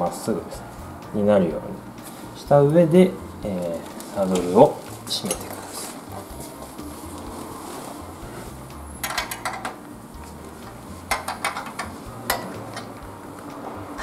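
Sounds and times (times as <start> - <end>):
spanner clicking on metal nut: 9.0 - 9.8.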